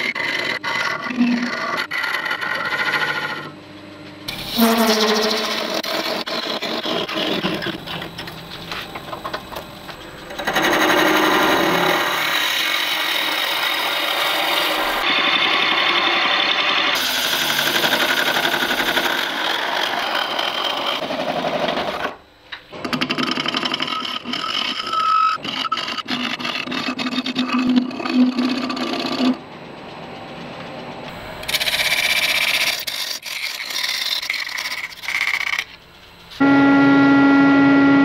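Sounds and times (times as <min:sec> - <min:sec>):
drill bit boring into wood: 0:10.3 - 0:21.9
wood lathe turning tool cutting: 0:10.3 - 0:22.2.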